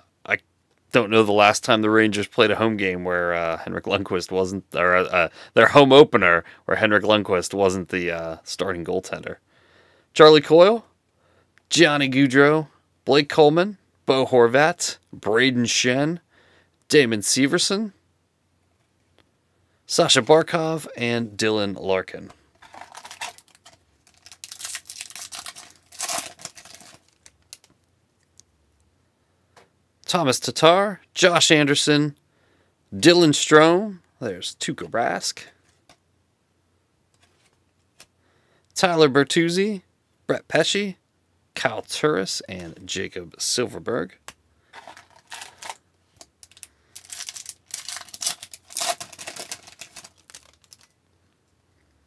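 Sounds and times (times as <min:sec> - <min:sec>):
foil wrapper crinkling and tearing: 0:22.6 - 0:27.7, 0:44.8 - 0:45.8, 0:46.4 - 0:51.0.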